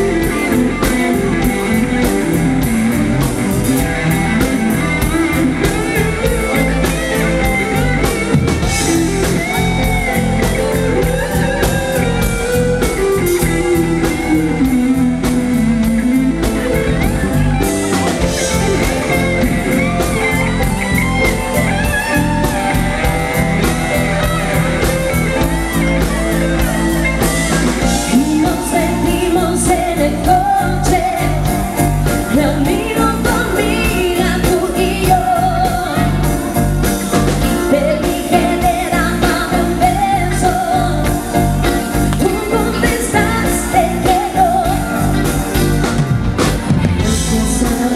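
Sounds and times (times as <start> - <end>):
pop-rock band playing: 0.0 - 47.9
woman singing: 27.8 - 45.9, 47.0 - 47.9.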